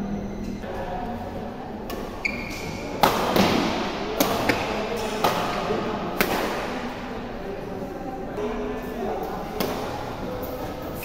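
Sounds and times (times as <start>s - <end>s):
racket striking shuttlecock: 1.9s - 6.8s
shoe squeak: 2.2s - 2.9s.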